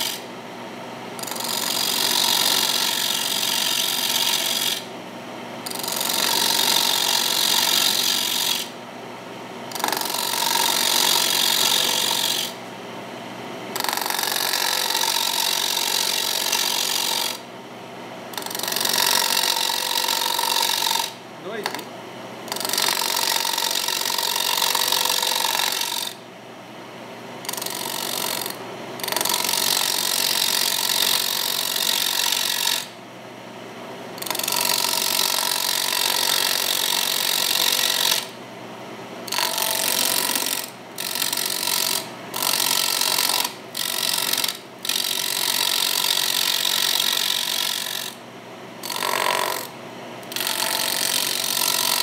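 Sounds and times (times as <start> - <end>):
turning tool cutting wood on lathe: 1.2 - 4.8, 5.7 - 8.7, 9.7 - 12.6, 13.8 - 17.4, 18.4 - 21.8, 22.5 - 26.2, 27.5 - 32.9, 34.2 - 38.3, 39.3 - 48.2, 48.8 - 49.7, 50.3 - 52.0
wood lathe running: 1.2 - 4.8, 9.9 - 12.5, 13.8 - 17.4, 18.4 - 21.8, 48.8 - 49.7.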